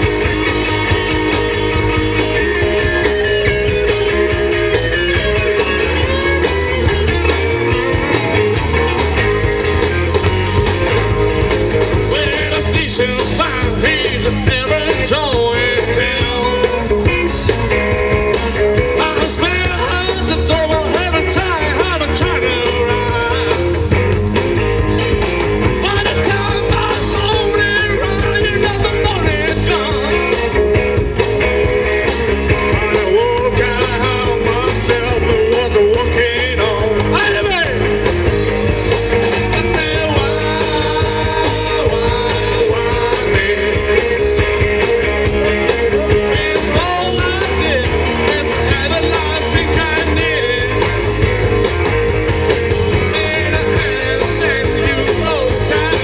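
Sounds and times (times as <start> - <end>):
electric guitar: 0.0 - 56.0
rock and roll band playing: 0.0 - 56.0
person singing: 11.8 - 17.1, 18.8 - 23.8, 25.7 - 30.6, 32.5 - 37.9, 39.2 - 51.3, 52.7 - 56.0.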